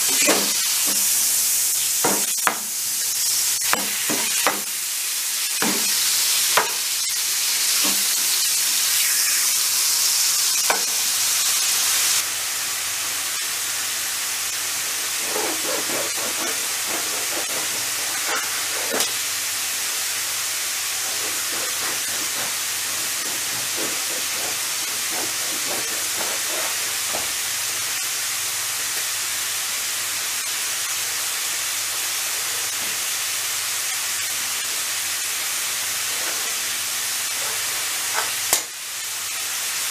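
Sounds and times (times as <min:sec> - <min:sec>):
meat sizzling in a frying pan: 0:00.0 - 0:39.9
bread knife sawing crusty loaf: 0:14.9 - 0:20.0, 0:20.8 - 0:27.4.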